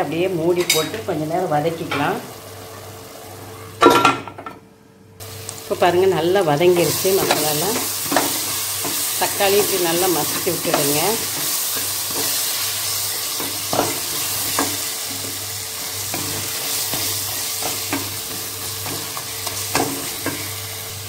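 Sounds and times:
food sizzling in oil: 0:05.2 - 0:21.0.

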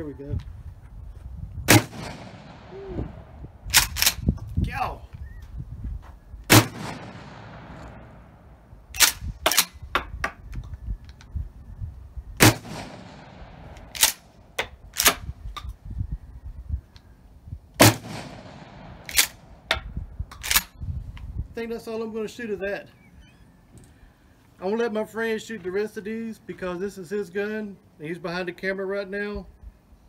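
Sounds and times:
shotgun shots echoing: 0:01.7 - 0:04.2, 0:06.5 - 0:09.7, 0:12.4 - 0:15.2, 0:17.8 - 0:19.8.

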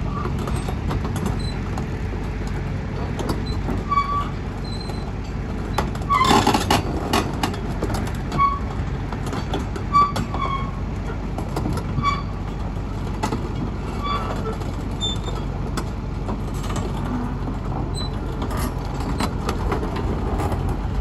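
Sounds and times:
diesel excavator engine idling: 0:00.0 - 0:21.0
short high squeaks: 0:03.4 - 0:05.2, 0:09.9 - 0:10.8, 0:12.0 - 0:12.5, 0:13.9 - 0:15.5.

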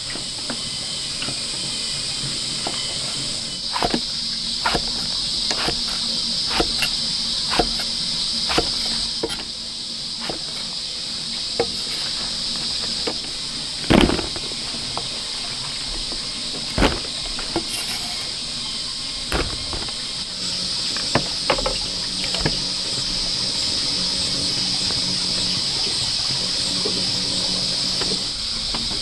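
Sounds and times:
high insect drone: 0:00.0 - 0:29.0
knife chopping on wooden board: 0:04.7 - 0:07.9, 0:08.5 - 0:09.4
heavy thuds: 0:13.9 - 0:14.6, 0:16.7 - 0:17.6, 0:19.3 - 0:20.0.

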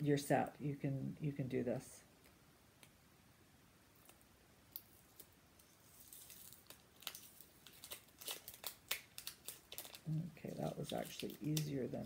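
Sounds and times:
sticky tape peeling off metal: 0:06.0 - 0:10.0.

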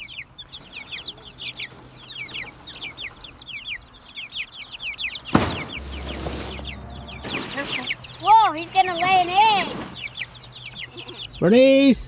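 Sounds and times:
chicks peeping: 0:00.0 - 0:12.0
sharp knock: 0:05.3 - 0:07.6
low rumble: 0:05.4 - 0:08.3.

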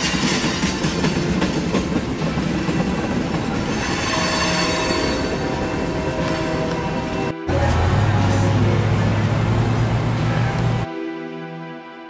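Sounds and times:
wheels clacking over rail joints: 0:00.0 - 0:10.8
wheels squealing on rail: 0:00.0 - 0:10.8.

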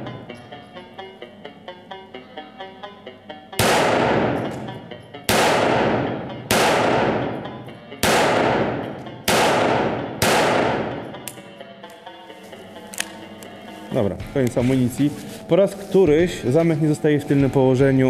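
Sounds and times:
background music with beat: 0:00.0 - 0:18.0
pistol shots ringing: 0:03.6 - 0:11.4.

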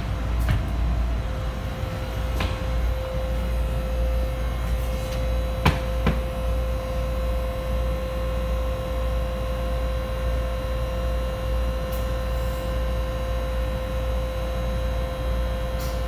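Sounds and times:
train low hum with whine: 0:00.0 - 0:16.0.

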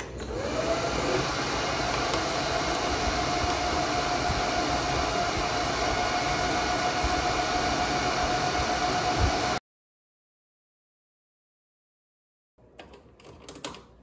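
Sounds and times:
cooling fans rushing hum: 0:00.0 - 0:09.6
high fan whine: 0:00.0 - 0:09.6.

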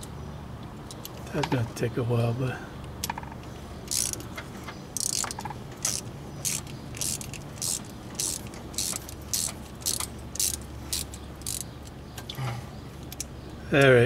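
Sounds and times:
ratchet wrench clicking: 0:03.9 - 0:04.3, 0:05.0 - 0:11.9.

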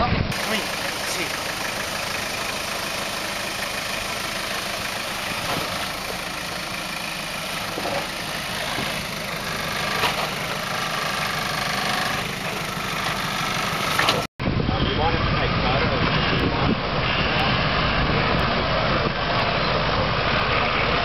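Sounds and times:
car engine at low revs: 0:00.3 - 0:14.3.

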